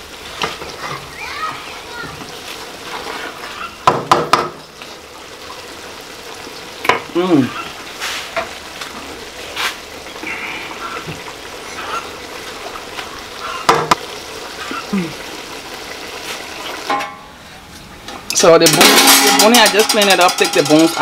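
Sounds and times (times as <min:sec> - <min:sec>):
greens sizzling in a pot: 0:00.0 - 0:21.0
spoon knocking against pot: 0:03.8 - 0:04.6, 0:13.7 - 0:14.0, 0:18.6 - 0:21.0.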